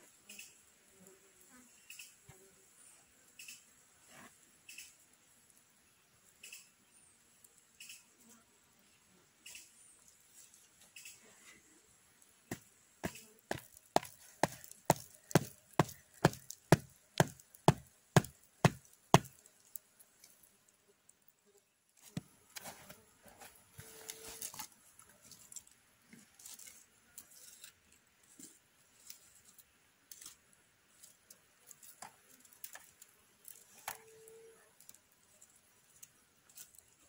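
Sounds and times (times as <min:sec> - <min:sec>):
wood knocking on wooden stake: 0:12.5 - 0:19.4
faint handling sounds: 0:21.9 - 0:37.0.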